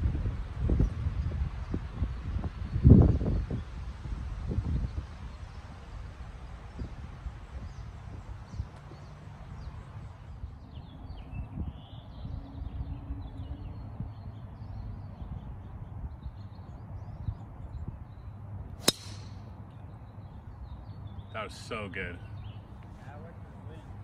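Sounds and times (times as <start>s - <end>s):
birds chirping: 4.5s - 24.0s
golf club striking ball: 18.8s - 19.5s.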